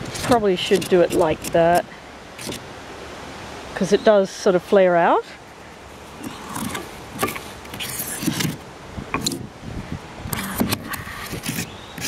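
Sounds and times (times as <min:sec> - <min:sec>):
handling rubbing and scraping: 0:00.0 - 0:02.7, 0:05.8 - 0:09.5, 0:10.3 - 0:12.0.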